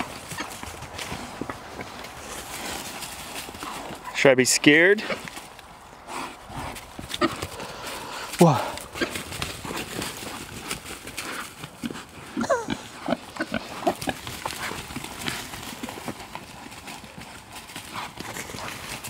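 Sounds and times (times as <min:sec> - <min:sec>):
pigs running through dry leaves: 0:00.0 - 0:19.0
pigs grunting and squealing: 0:11.2 - 0:15.3.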